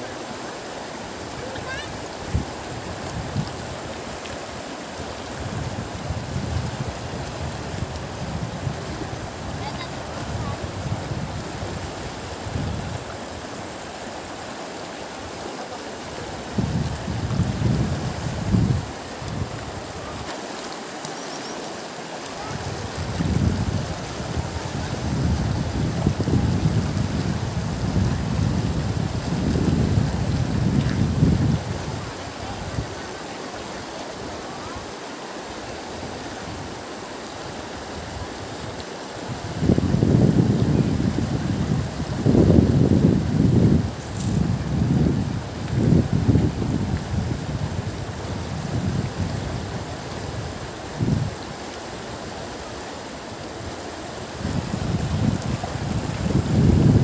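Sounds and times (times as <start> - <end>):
river water rushing: 0.0 - 57.0
wind buffeting microphone: 1.2 - 4.0, 5.0 - 13.5, 16.2 - 20.3, 22.4 - 33.0, 37.9 - 52.3, 53.6 - 57.0.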